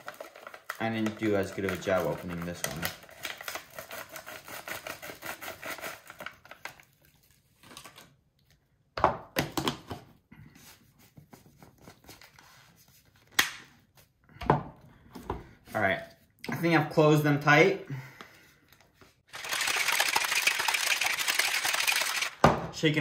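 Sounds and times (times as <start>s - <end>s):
foil packet crinkling: 0.0s - 8.2s, 19.3s - 22.4s.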